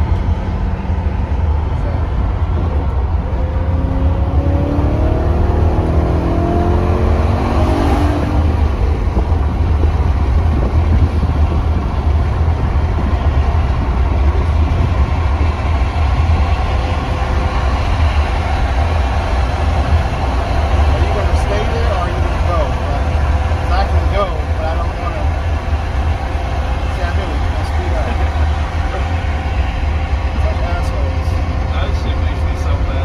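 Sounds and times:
car engine accelerating: 0.0 - 33.0
tyre and road rumble: 0.0 - 33.0.

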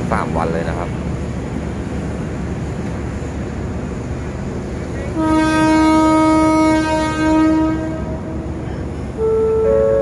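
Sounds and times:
locomotive horn blasts: 5.1 - 10.0.

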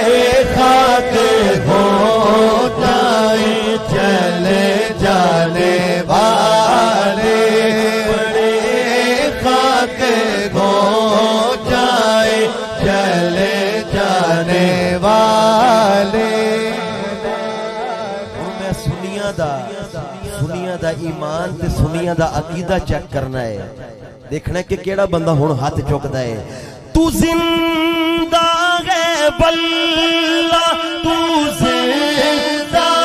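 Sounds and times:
man singing into a microphone: 0.0 - 33.0.

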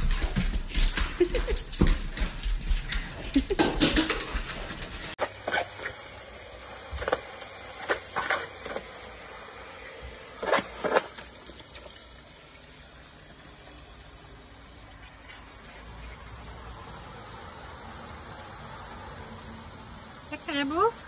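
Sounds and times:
steady hiss: 5.1 - 21.0
dog splashing in water: 10.4 - 12.5.

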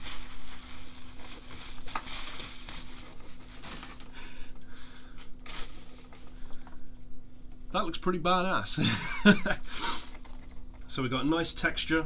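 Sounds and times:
bubble wrap crinkling: 0.0 - 4.2, 5.0 - 6.6.

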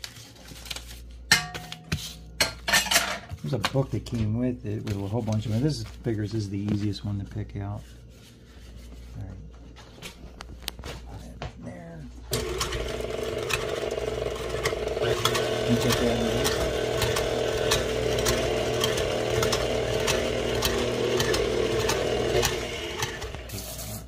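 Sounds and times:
stand mixer motor running: 12.3 - 23.5.

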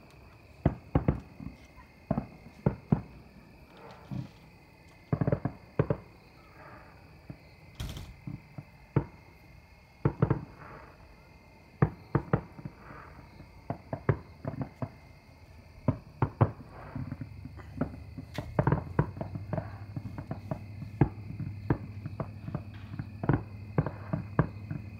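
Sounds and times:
fireworks bursting: 0.0 - 9.4, 10.0 - 24.9.

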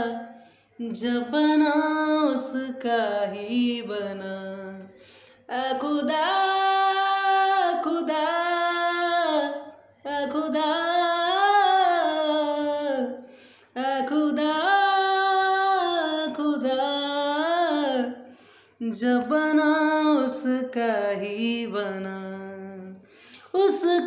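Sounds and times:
man singing a cappella: 0.0 - 24.0
man breathing: 4.9 - 5.5, 13.2 - 13.8, 18.2 - 18.8, 23.0 - 23.5.

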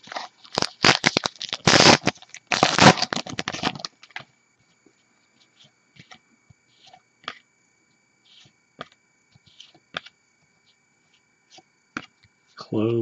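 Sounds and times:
wrapper tearing and crinkling: 0.0 - 4.2.

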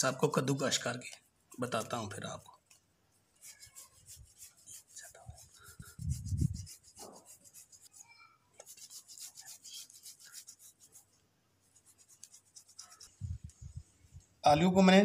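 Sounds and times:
potato grating on metal grater: 3.4 - 8.0, 8.6 - 11.1, 11.8 - 13.2.

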